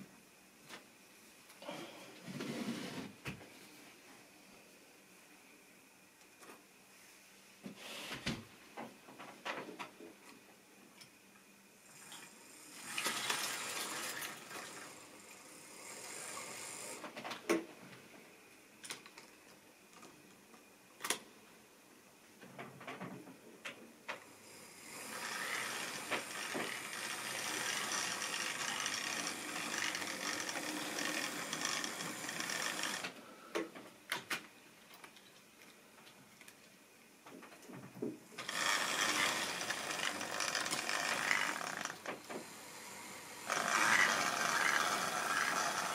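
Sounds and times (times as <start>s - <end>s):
small electric motor whirring: 24.8s - 33.1s, 38.4s - 42.1s, 42.9s - 45.9s.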